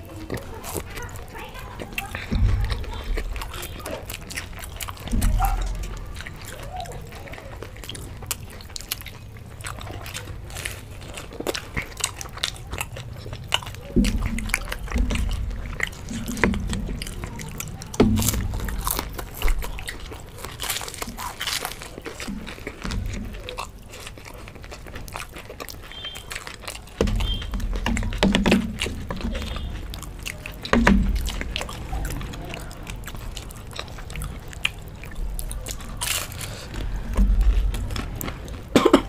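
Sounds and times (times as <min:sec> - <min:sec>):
crunching fried pastry: 0:00.0 - 0:39.0
wet chewing: 0:00.0 - 0:39.0
dull thumps: 0:01.9 - 0:06.5, 0:13.9 - 0:20.2, 0:26.9 - 0:33.5, 0:35.2 - 0:39.0.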